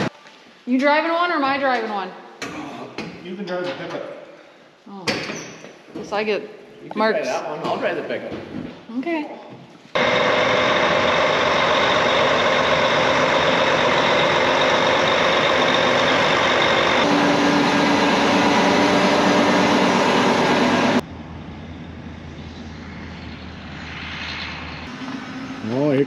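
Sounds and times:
vehicle engine running loudly: 10.0s - 26.0s.

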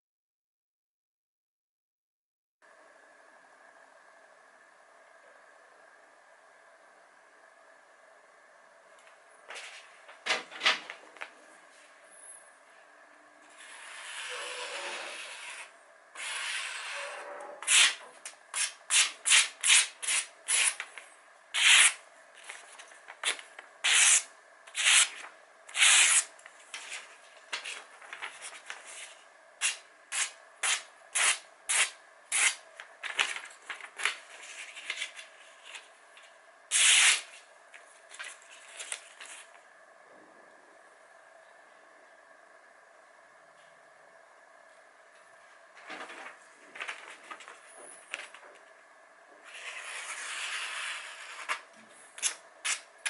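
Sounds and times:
paper rustling: 9.5s - 11.4s, 24.8s - 39.6s, 45.8s - 48.6s
knife slicing paper: 17.6s - 18.0s, 18.6s - 20.8s, 21.6s - 22.6s, 23.2s - 33.4s, 36.7s - 37.4s.

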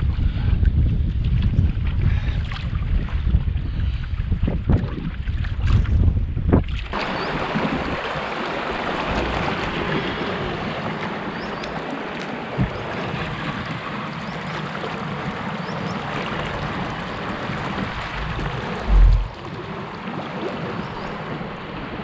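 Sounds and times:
waterfall rushing: 15.0s - 19.8s.

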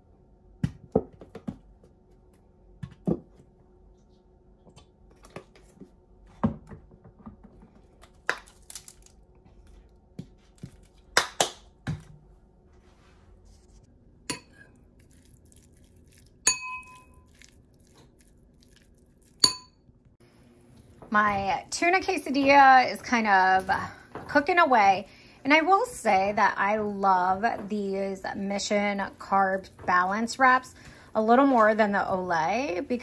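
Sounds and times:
spoon ringing ping: 16.4s - 17.2s, 19.4s - 19.8s
spoon clinking on ceramic bowl: 16.4s - 17.3s, 19.4s - 19.8s.

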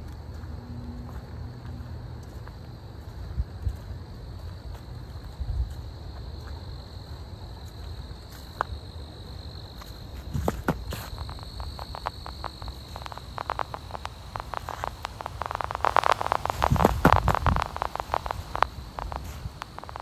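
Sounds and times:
insects trilling: 0.0s - 20.0s
leaves crunching underfoot: 9.8s - 20.0s
low rumble: 12.7s - 20.0s.

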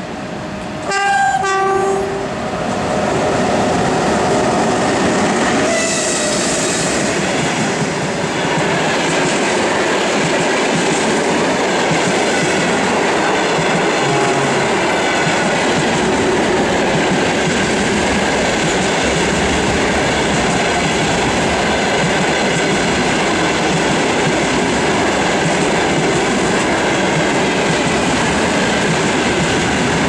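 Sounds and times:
train rushing past: 0.0s - 30.0s
train horn blast: 0.8s - 2.4s, 5.6s - 7.0s, 14.0s - 15.0s.

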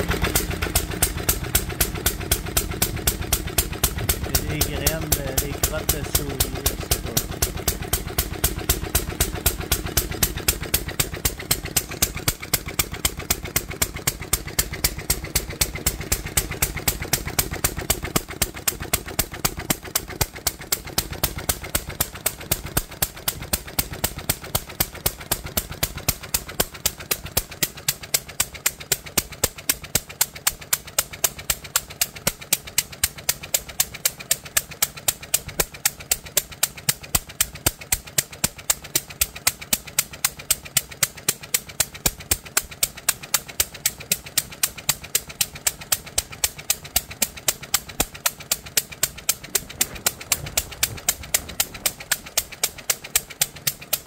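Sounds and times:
stationary engine running: 0.0s - 27.6s, 38.6s - 54.0s
sharp exhaust pops: 0.0s - 29.8s, 34.1s - 54.0s.

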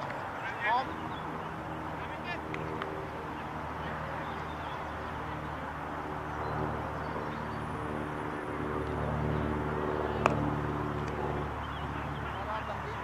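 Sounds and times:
outdoor noise: 0.0s - 13.0s.

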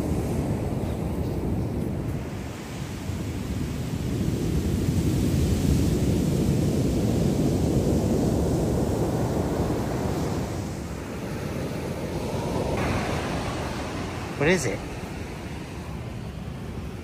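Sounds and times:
surf breaking on beach: 0.0s - 17.0s
wind rumbling on microphone: 0.0s - 17.0s.

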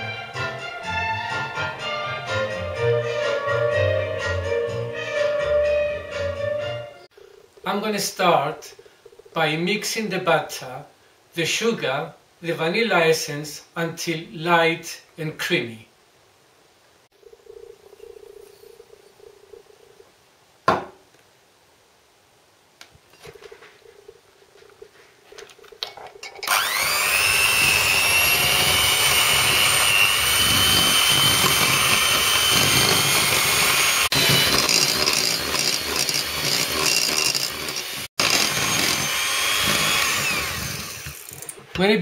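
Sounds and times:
electric mixer whining: 26.4s - 41.5s.

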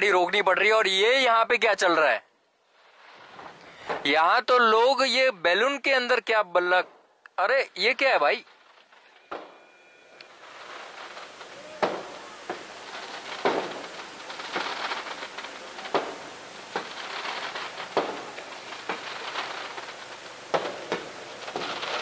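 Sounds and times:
firecrackers crackling: 0.0s - 22.0s
firecracker bangs: 2.8s - 4.2s, 8.0s - 22.0s.

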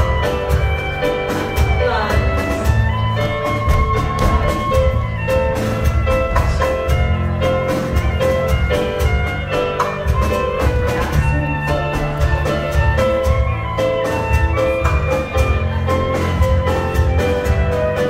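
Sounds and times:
live dance band playing: 0.0s - 18.0s.

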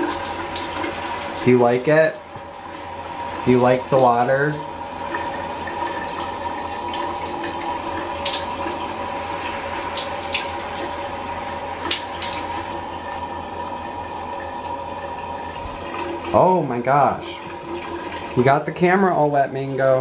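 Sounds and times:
water drips and splashes: 0.0s - 19.5s.

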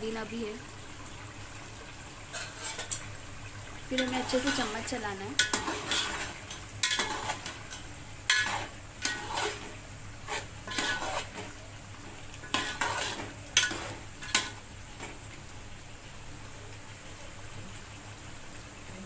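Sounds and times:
low steady sizzle: 0.0s - 19.0s
metal ladle scraping pot: 2.3s - 3.1s, 3.9s - 11.6s, 12.4s - 14.6s.

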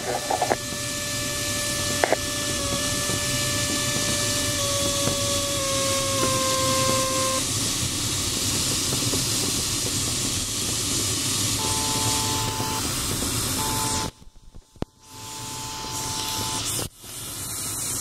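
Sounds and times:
variometer tone: 0.0s - 7.4s, 11.6s - 16.9s
air rushing over canopy: 6.7s - 14.8s.

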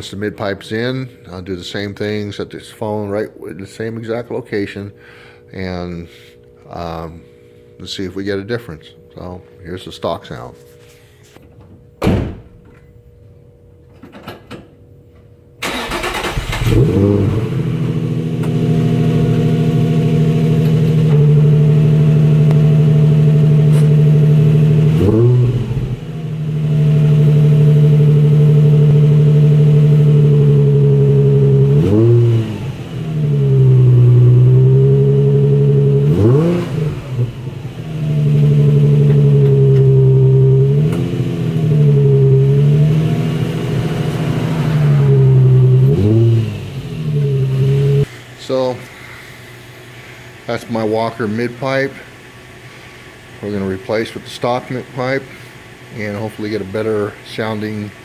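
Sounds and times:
engine starter cranking: 15.6s - 17.3s
car engine idling: 15.6s - 48.1s
engine throttle blips: 15.6s - 48.1s.

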